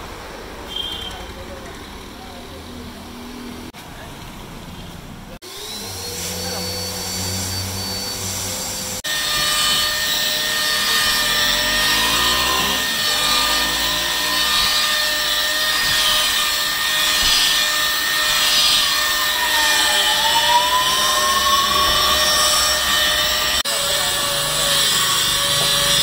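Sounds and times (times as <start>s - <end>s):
electric polisher motor whine: 5.4s - 26.0s.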